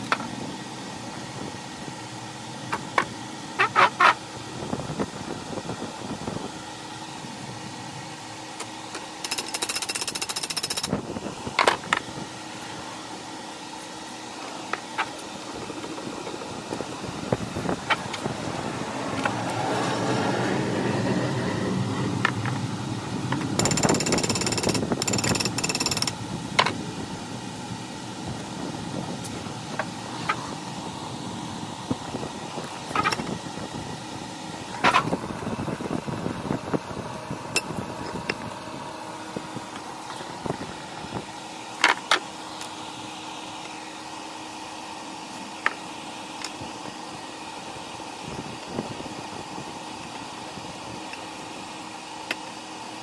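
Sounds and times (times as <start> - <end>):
power tool hammering: 23.6 - 26.7.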